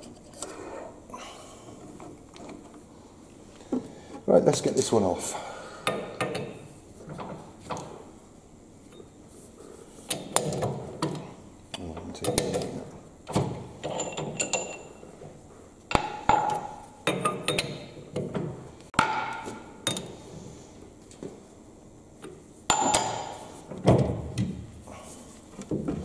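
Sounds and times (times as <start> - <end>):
metal clanks and clinks: 13.8 - 15.1.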